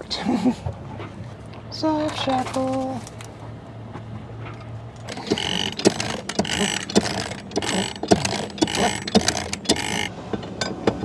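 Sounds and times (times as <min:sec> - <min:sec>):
winch ratcheting and clanking: 0:04.4 - 0:11.0
short squeak: 0:05.1 - 0:10.1.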